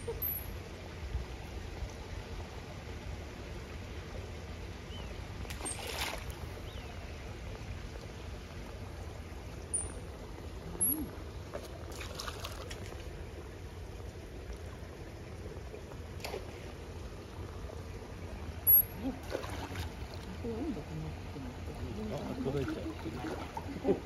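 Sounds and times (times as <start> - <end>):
low steady rumble: 0.0 - 24.0
pool water trickling and lapping: 0.0 - 24.0
water splashes: 5.3 - 24.0.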